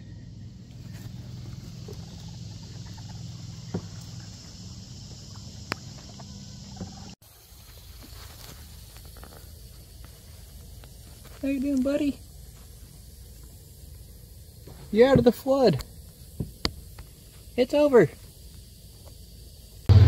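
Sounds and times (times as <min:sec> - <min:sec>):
low hum: 0:00.0 - 0:07.2, 0:19.8 - 0:20.0
insect hiss: 0:00.0 - 0:20.0.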